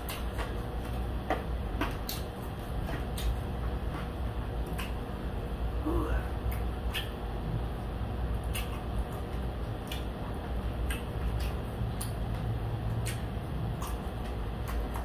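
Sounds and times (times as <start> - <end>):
steady low hum: 0.0 - 15.0
mouth clicks: 5.9 - 7.3, 8.4 - 10.2, 10.8 - 15.0
crunching of chewed crispy food: 6.4 - 15.0.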